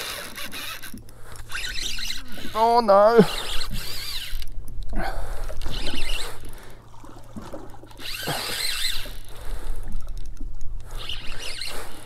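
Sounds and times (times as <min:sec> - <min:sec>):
fishing reel spinning: 0:00.0 - 0:04.6, 0:05.4 - 0:06.6, 0:07.9 - 0:12.0.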